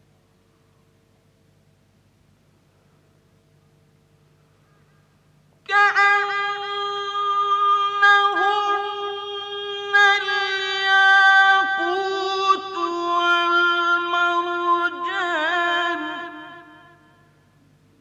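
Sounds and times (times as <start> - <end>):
man chanting recitation: 5.7 - 17.2.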